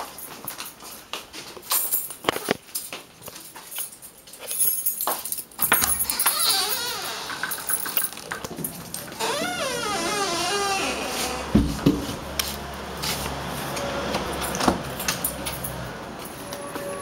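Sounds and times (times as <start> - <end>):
keys jangling in a lock: 1.6 - 10.3, 14.3 - 17.0
wooden door opening: 5.7 - 12.2.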